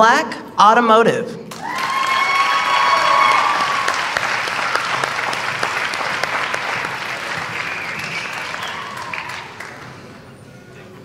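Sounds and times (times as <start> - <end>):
audience applauding: 1.5 - 10.3.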